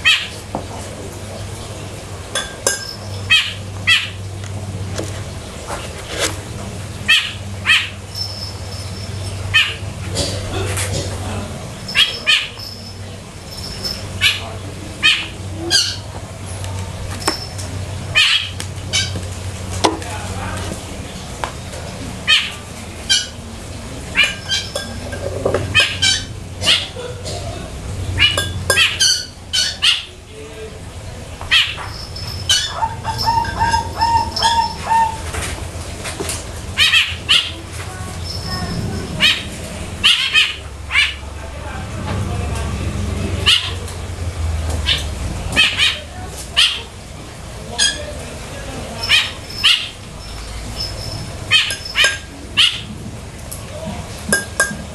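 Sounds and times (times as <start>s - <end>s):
high chirps: 7.2s - 9.8s, 11.8s - 16.1s, 31.5s - 35.3s, 49.0s - 52.9s
rooster clucking: 22.2s - 30.2s, 31.5s - 35.8s, 47.6s - 53.0s.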